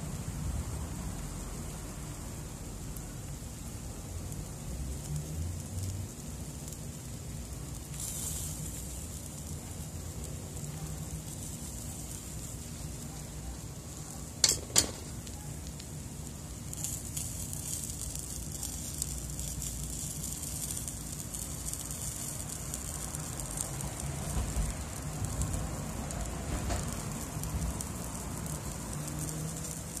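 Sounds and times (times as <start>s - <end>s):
fish sizzling over charcoal: 0.0s - 30.0s
metal basket clanking on grill: 14.4s - 15.1s.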